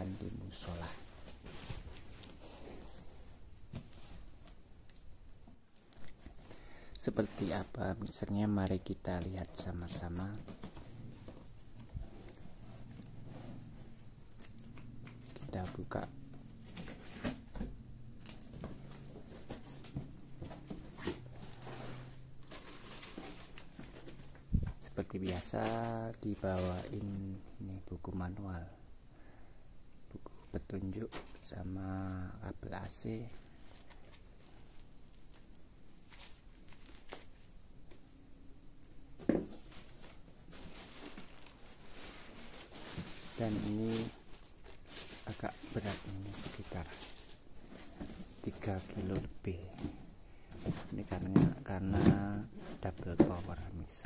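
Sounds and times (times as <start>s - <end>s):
packaging being handled: 39.3s - 49.2s.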